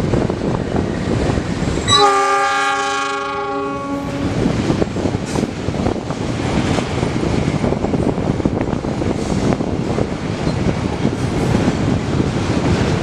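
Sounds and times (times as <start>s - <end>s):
locomotive horn blast: 1.8s - 4.4s
train wheels clattering on rails: 4.3s - 13.0s.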